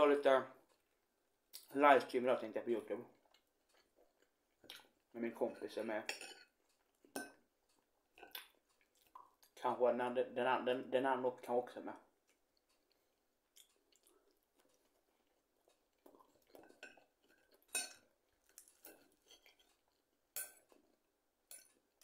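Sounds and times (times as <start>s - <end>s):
chewing: 3.1s - 5.1s, 6.4s - 9.6s, 12.0s - 22.0s.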